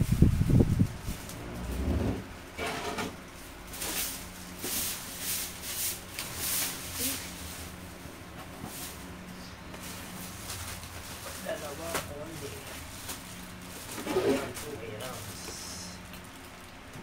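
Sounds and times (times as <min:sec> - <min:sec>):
plastic wrapping crinkling: 0:09.7 - 0:17.0.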